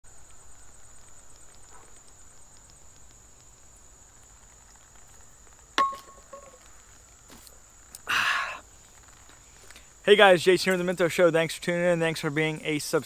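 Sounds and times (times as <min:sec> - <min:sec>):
insect chorus drone: 0:00.0 - 0:13.0.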